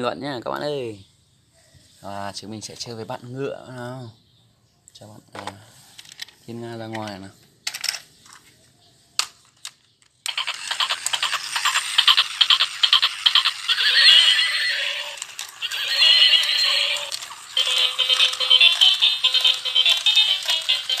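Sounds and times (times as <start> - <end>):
electronic clip-clop hoofbeats: 10.3 - 14.6, 17.6 - 21.0
recorded horse whinnies: 12.5 - 17.2.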